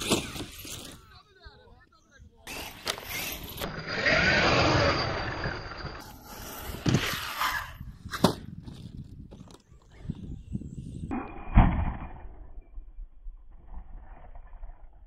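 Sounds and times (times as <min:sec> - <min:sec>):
rc truck motor and tyres: 0:00.0 - 0:01.3, 0:02.4 - 0:11.2, 0:11.8 - 0:15.0
thud: 0:11.1 - 0:12.5.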